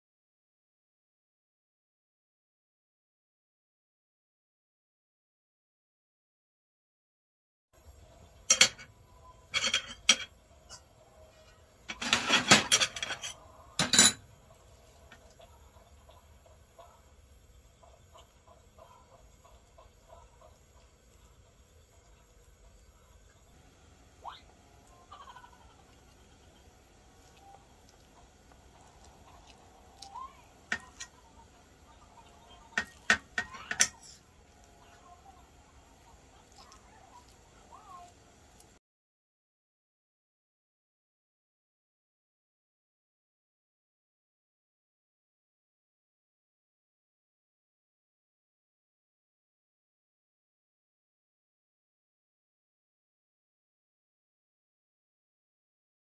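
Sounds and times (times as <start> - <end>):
metal spoon and dishes clattering: 8.4 - 8.9, 9.5 - 10.9, 11.9 - 14.3, 30.7 - 31.2, 32.7 - 34.2.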